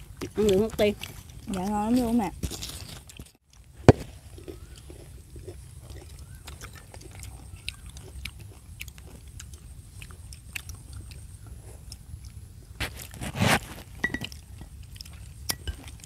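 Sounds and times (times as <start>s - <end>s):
people chewing and lip-smacking: 0.0s - 16.0s.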